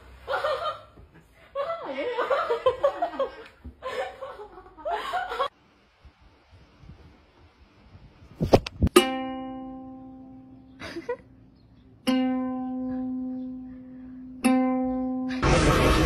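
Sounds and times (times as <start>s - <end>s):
ukulele note ringing: 8.9s - 10.8s, 12.0s - 13.7s.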